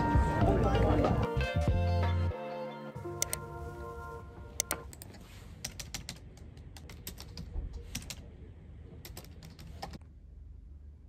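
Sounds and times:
low office hum: 0:03.3 - 0:11.0
typing on computer keyboard: 0:04.8 - 0:08.2, 0:09.0 - 0:10.0.

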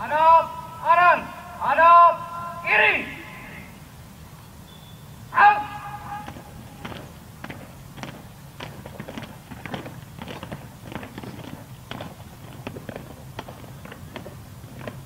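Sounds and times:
low steady hum: 0:00.0 - 0:15.0
boots marching on pavement: 0:06.1 - 0:15.0.

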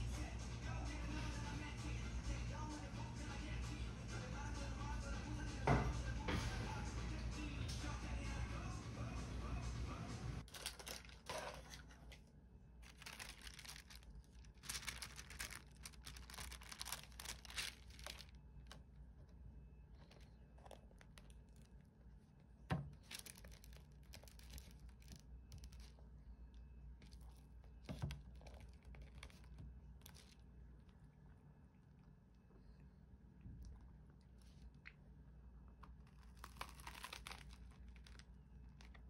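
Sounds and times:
paper wrapper crinkling and tearing: 0:10.4 - 0:12.1, 0:12.8 - 0:18.8, 0:22.9 - 0:26.0, 0:27.0 - 0:30.4, 0:35.9 - 0:39.0.

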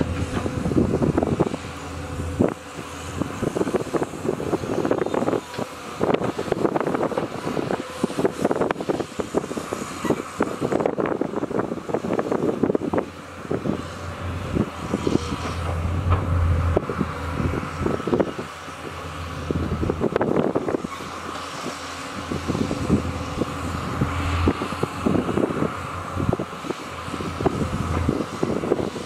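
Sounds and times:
excavator diesel engines: 0:00.0 - 0:29.0
machine knocks and clanks: 0:15.4 - 0:16.4.

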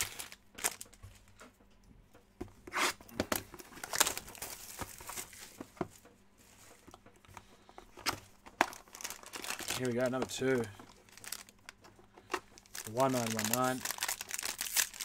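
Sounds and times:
plastic wrap tearing and crackling: 0:00.0 - 0:01.0, 0:03.7 - 0:05.4, 0:08.6 - 0:11.8, 0:12.5 - 0:15.0.

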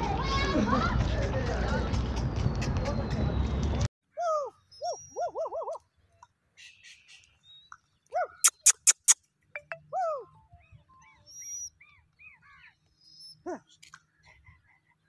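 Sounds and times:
sharp clicks: 0:08.4 - 0:09.8.

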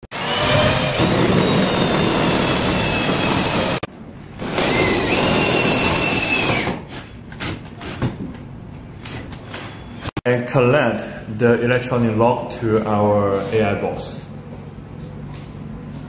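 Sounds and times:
cordless drill whining: 0:00.2 - 0:03.9, 0:04.6 - 0:06.8.

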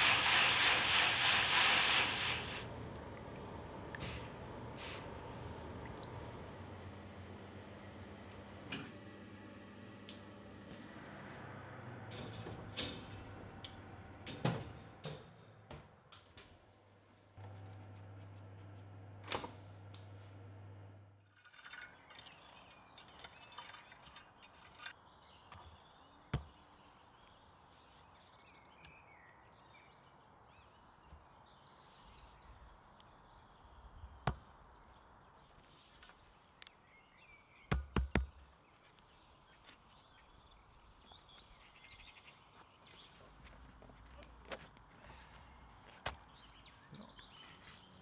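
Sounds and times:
electric oven hum: 0:02.6 - 0:15.9, 0:17.4 - 0:21.2
birds chirping: 0:36.2 - 0:48.0.

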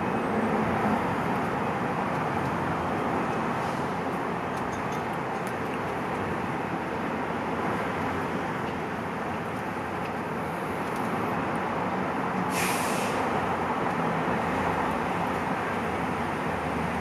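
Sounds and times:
short burst of hiss: 0:12.5 - 0:13.2.

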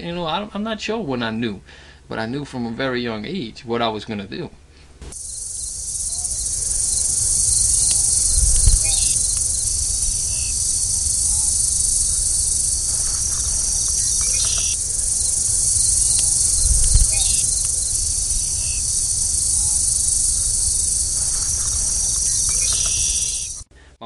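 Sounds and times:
insects chorus shrilling: 0:05.1 - 0:23.7
low rumble: 0:05.2 - 0:21.4.

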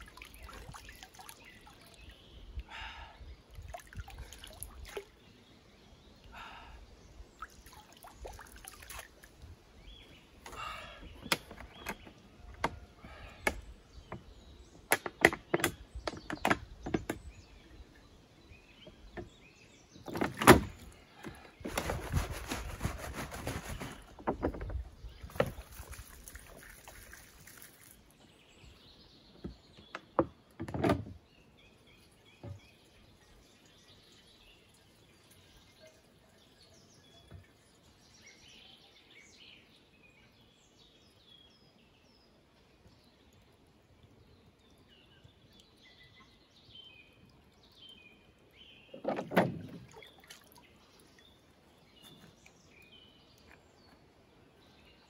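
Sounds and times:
water pouring from bottle: 0:03.6 - 0:05.3, 0:21.6 - 0:28.2
hands splashing water: 0:25.3 - 0:28.2, 0:49.3 - 0:51.3.

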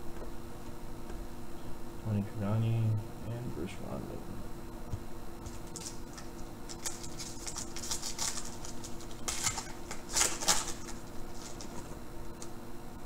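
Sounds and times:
plastic wrapper crinkling: 0:05.5 - 0:12.5.

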